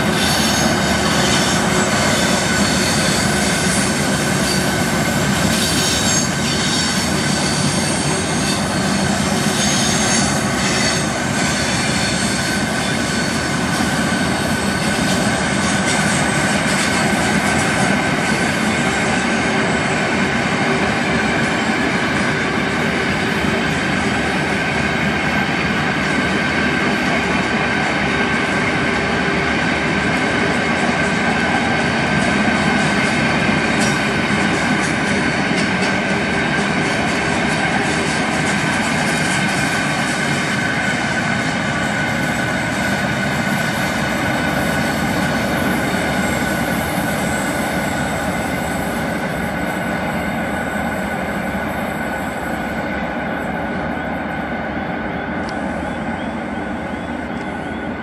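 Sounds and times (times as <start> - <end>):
train wheels rolling on rails: 0.0 - 58.0
wheel squeal: 0.1 - 17.0.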